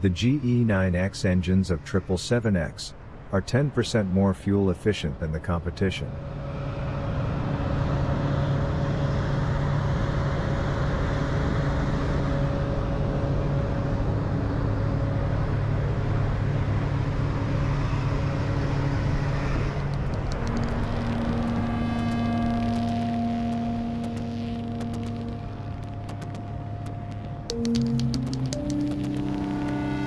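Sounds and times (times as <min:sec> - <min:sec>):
low machinery hum: 0:06.0 - 0:30.0
rushing noise: 0:19.8 - 0:30.0.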